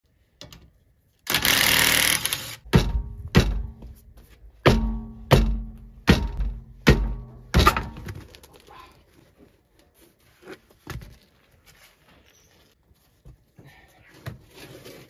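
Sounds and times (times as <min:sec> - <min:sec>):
impact wrench hammering: 0:01.3 - 0:03.9, 0:04.6 - 0:08.0
heavy thuds of tyre kicks: 0:02.7 - 0:04.0, 0:04.6 - 0:08.1.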